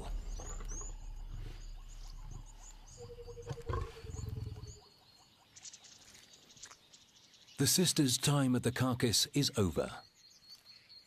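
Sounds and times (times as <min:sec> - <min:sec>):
lion growling: 0:00.0 - 0:04.8
small birds chirping: 0:00.0 - 0:11.0.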